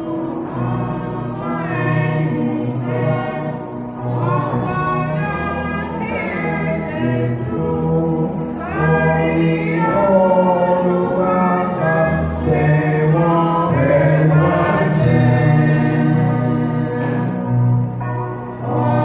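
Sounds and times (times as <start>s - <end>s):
church choir singing in harmony: 0.0s - 19.0s.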